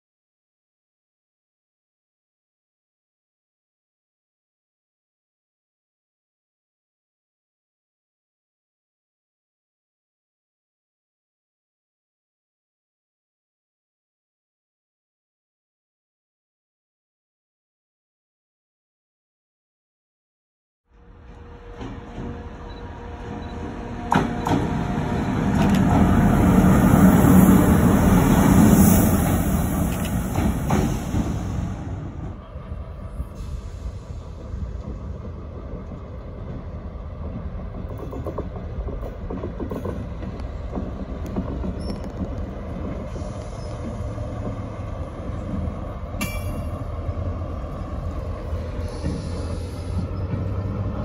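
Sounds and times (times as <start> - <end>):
locomotive engine rumbling: 21.0 - 51.0
wheel squeal on rail: 41.6 - 42.3, 42.9 - 44.6, 48.6 - 50.9.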